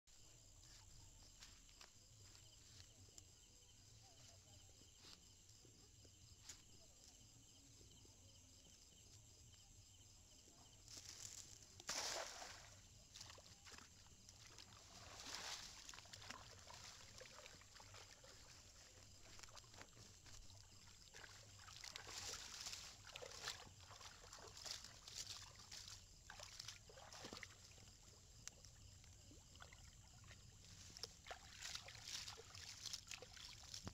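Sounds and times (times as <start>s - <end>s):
wet net rustling and sloshing: 11.0s - 28.5s, 29.5s - 33.9s.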